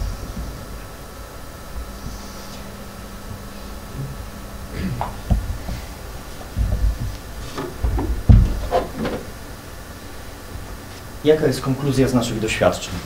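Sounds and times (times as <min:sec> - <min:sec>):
steady hiss: 0:00.0 - 0:13.0
dull low thumps and knocks: 0:05.1 - 0:09.4.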